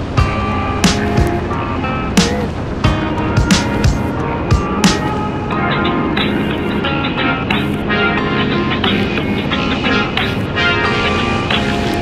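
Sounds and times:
music playing: 0:00.0 - 0:12.0.

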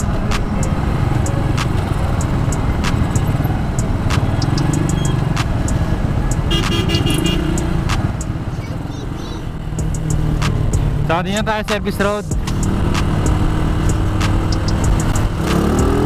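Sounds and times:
motorcycle engine rumble: 0:00.0 - 0:16.0
road and wind noise: 0:00.0 - 0:16.0
vehicle horn: 0:06.4 - 0:07.8.

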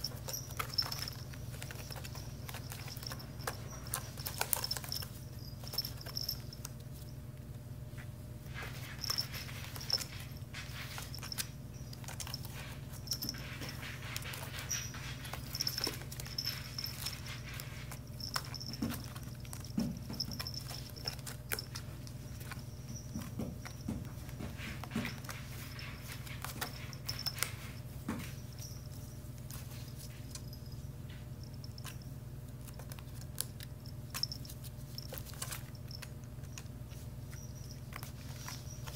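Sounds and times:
kitten claws scratching basket: 0:00.0 - 0:38.9
steady low hum: 0:00.0 - 0:38.9
light taps and rustles: 0:08.0 - 0:32.0.

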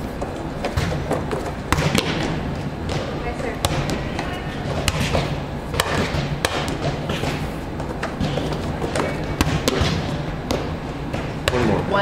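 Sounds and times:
volleyballs thudding: 0:00.0 - 0:12.0.

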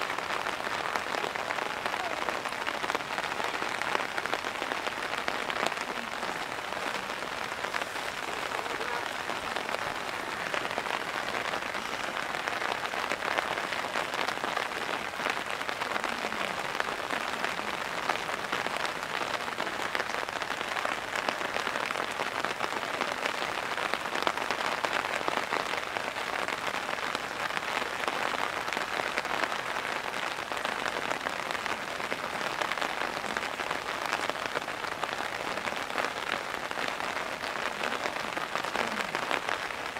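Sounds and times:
heavy rain on hard surfaces: 0:00.0 - 0:39.9.

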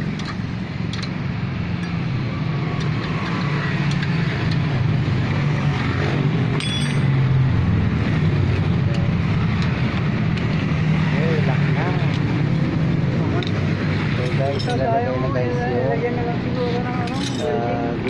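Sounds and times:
hand tools clicking and clinking: 0:00.0 - 0:02.1, 0:02.7 - 0:04.7, 0:06.5 - 0:07.2, 0:13.4 - 0:14.9, 0:16.7 - 0:17.7.

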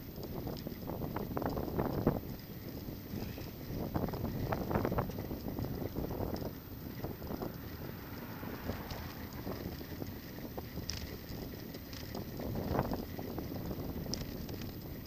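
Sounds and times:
bike rattles and clicks: 0:00.0 - 0:15.0
tyres rumbling on pavement: 0:00.0 - 0:15.0
wind buffeting microphone: 0:00.0 - 0:15.0.

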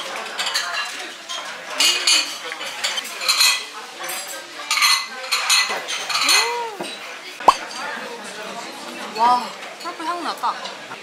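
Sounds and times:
dishes and cutlery clattering: 0:00.0 - 0:08.0.

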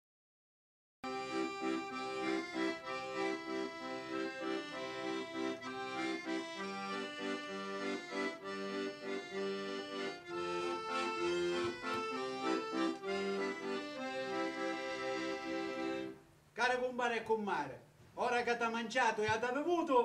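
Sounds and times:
accordion playing folk tune: 0:01.0 - 0:16.3.

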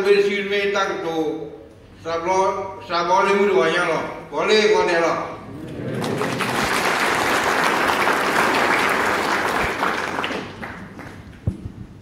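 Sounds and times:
audience applauding: 0:05.5 - 0:11.4.

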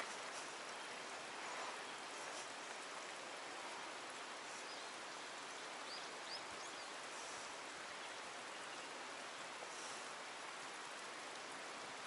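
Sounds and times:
flowing water hiss: 0:00.0 - 0:12.0.

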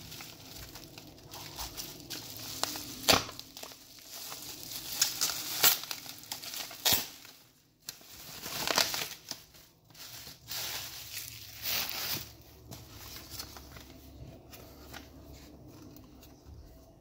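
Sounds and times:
bubble wrap crinkling: 0:00.0 - 0:17.0.

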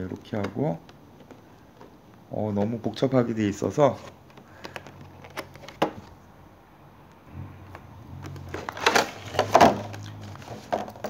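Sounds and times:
sharp plastic clicks: 0:04.2 - 0:06.0
plastic sleeve rustling: 0:08.1 - 0:11.0.

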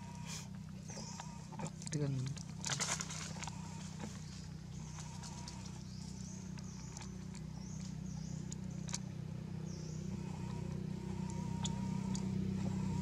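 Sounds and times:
steady low hum: 0:00.0 - 0:13.0
high wavering calls: 0:09.8 - 0:13.0.

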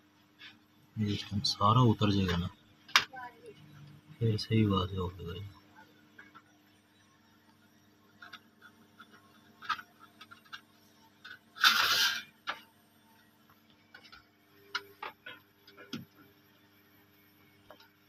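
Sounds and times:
rustling scrape: 0:11.6 - 0:12.3.

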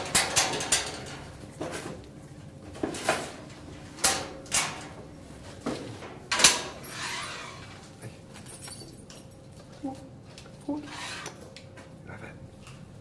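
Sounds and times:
metal cage clanking: 0:00.0 - 0:01.3.

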